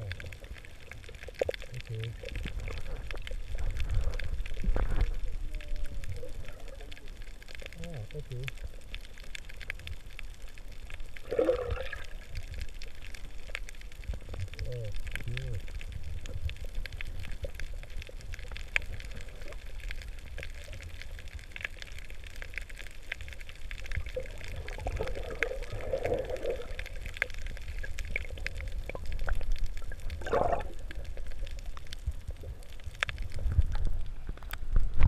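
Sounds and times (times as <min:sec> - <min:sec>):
bubbling gurgles: 0:00.0 - 0:35.0
muffled underwater rumble: 0:00.0 - 0:35.0
water splashing: 0:10.9 - 0:33.8.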